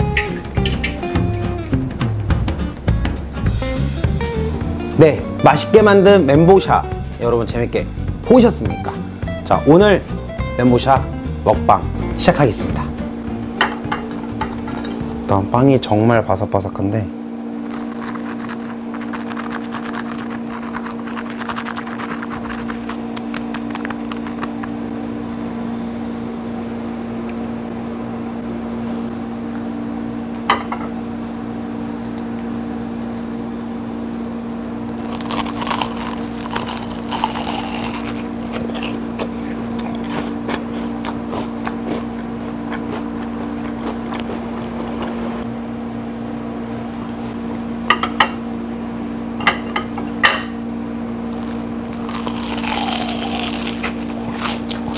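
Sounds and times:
low electrical hum: 0.0 - 54.9
loud crunching chewing: 17.6 - 25.8, 31.2 - 33.3, 34.0 - 45.2, 51.2 - 54.9
fried toast crackling when squeezed: 17.7 - 24.8, 34.1 - 42.4, 51.2 - 54.9.

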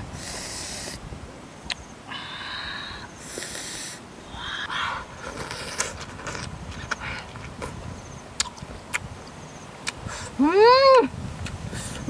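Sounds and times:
lip smacks: 8.4 - 9.1, 9.8 - 10.3.

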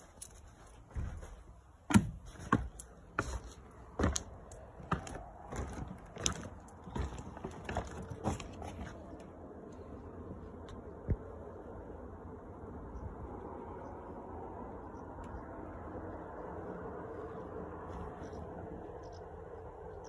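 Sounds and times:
footsteps walking: 0.0 - 9.2.

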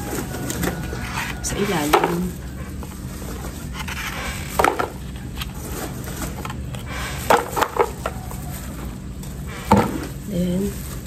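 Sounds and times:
charcoal clattering into plastic pot: 0.0 - 2.4, 4.3 - 5.0, 7.1 - 11.0.

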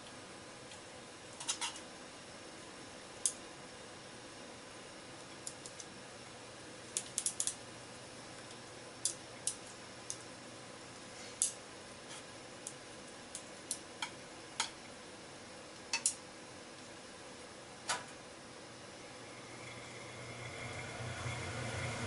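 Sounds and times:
chopsticks clicking in frying pan: 7.0 - 7.6, 12.6 - 14.8, 15.8 - 16.2.

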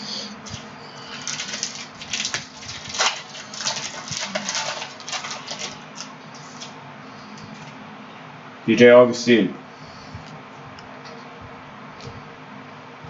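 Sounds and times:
foil wrapper tearing and crinkling: 0.4 - 6.7.

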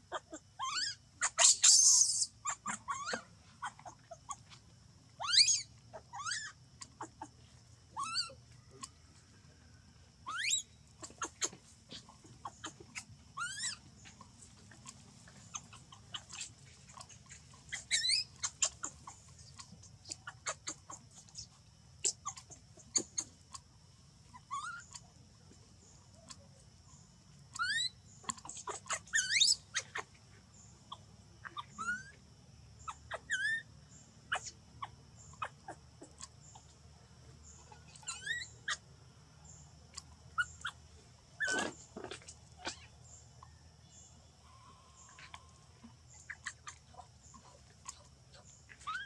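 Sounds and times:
baby monkey squealing: 0.1 - 4.6, 5.2 - 7.3, 8.0 - 8.4, 10.2 - 13.9, 15.4 - 19.2, 20.0 - 21.4, 22.0 - 23.4, 24.4 - 25.0, 27.5 - 30.1, 30.9 - 32.2, 32.8 - 33.7, 34.3 - 36.7, 37.7 - 38.8, 39.9 - 40.8, 41.4 - 43.2, 46.1 - 47.1, 48.7 - 49.0.

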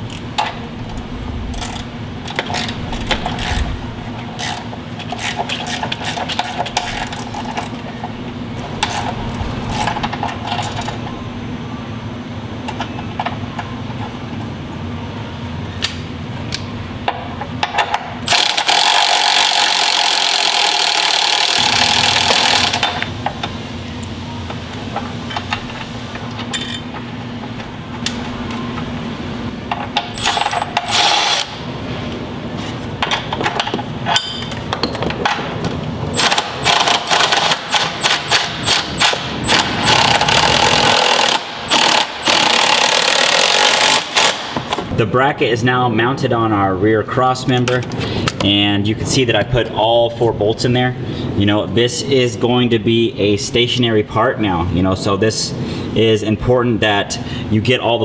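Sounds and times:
steady hum: 0.0 - 58.0
hand tools clinking on metal: 26.5 - 26.9.

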